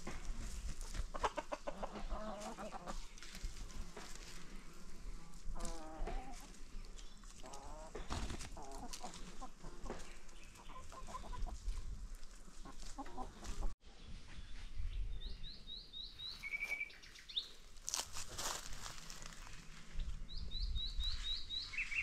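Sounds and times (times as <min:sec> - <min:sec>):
chickens clucking: 0:00.0 - 0:13.8
small bird chirping and trilling: 0:14.9 - 0:17.5.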